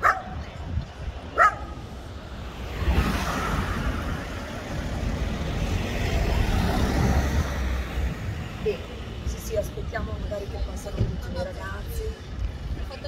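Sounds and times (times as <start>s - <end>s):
car driving past: 2.3s - 8.7s.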